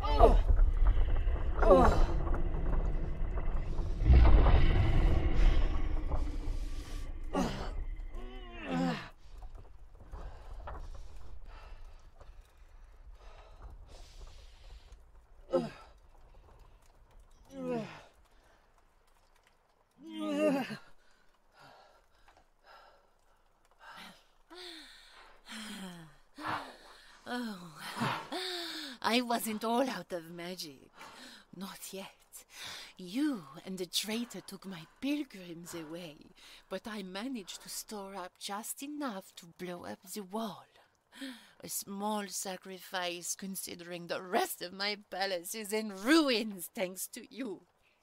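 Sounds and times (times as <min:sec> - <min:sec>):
deep rumble: 0:00.0 - 0:17.6
loud blast and crash: 0:00.4 - 0:08.3
woman groaning: 0:07.3 - 0:09.1.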